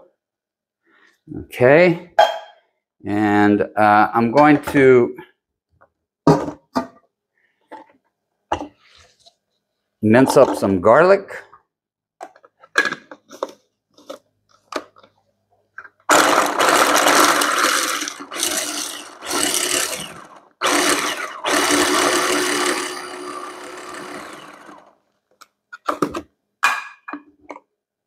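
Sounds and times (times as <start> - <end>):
electric food chopper whirring: 16.1 - 25.0.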